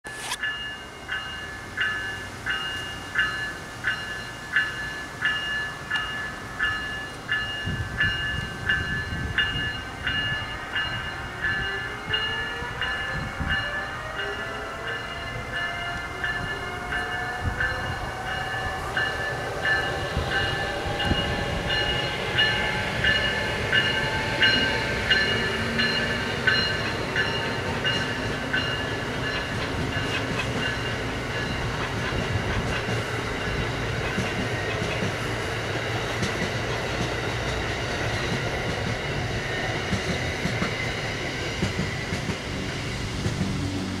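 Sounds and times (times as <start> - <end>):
low rail rumble: 0.1 - 44.0.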